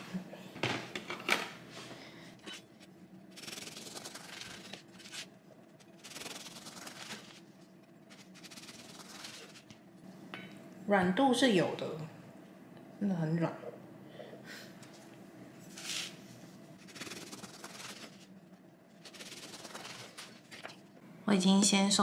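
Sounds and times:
rasping strokes on bread crust: 2.4 - 9.8, 16.8 - 18.3, 18.9 - 20.7.

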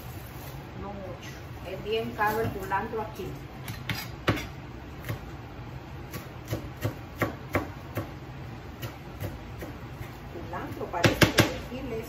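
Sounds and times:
knife chopping on cutting board: 3.6 - 5.3, 6.1 - 8.2, 8.8 - 10.2, 11.0 - 11.6.

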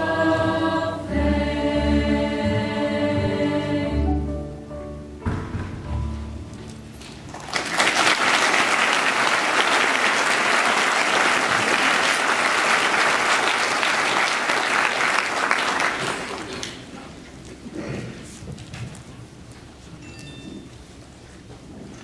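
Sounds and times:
choir singing: 0.0 - 4.5
audience applause: 7.3 - 17.0.

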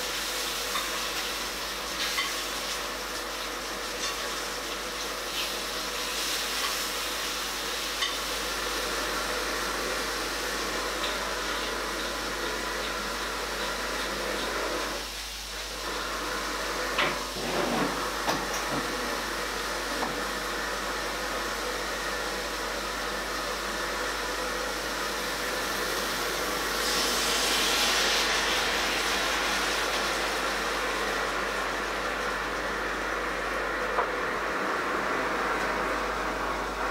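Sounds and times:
mushrooms sizzling in a skillet: 0.0 - 17.4, 18.0 - 36.1.

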